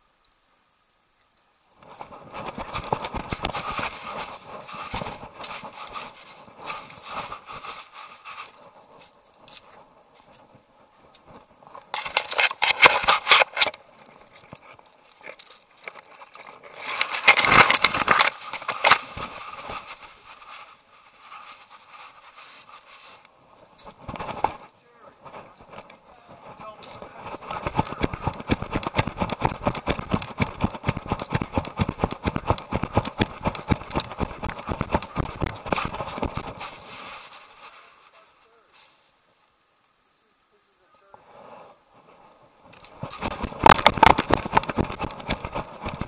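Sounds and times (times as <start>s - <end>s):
leaves and twigs scraping camera: 1.8s - 39.0s, 41.1s - 46.0s.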